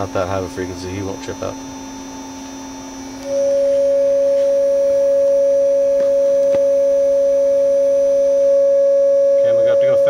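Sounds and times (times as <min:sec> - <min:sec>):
faint low electrical hum: 0:00.0 - 0:10.0
pure sine tone: 0:00.0 - 0:10.0.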